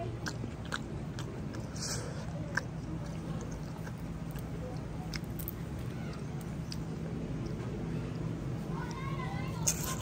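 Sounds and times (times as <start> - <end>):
crisp fried wrapper crackling: 3.0 - 7.5, 9.6 - 10.0.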